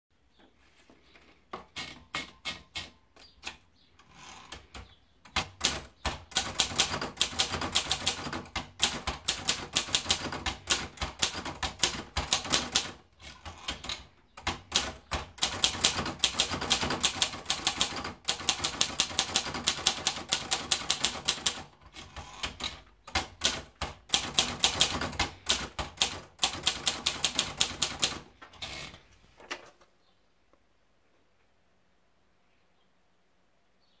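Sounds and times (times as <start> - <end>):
typewriter paper feed clicks: 4.5 - 29.0
typewriter keys striking: 4.6 - 28.8.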